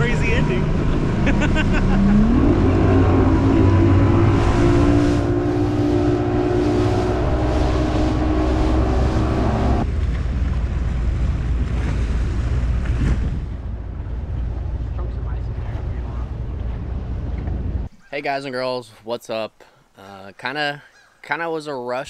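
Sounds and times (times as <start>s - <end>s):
rushing water: 0.0s - 17.3s
outboard motor running: 0.0s - 17.9s
wind buffeting microphone: 0.0s - 18.0s.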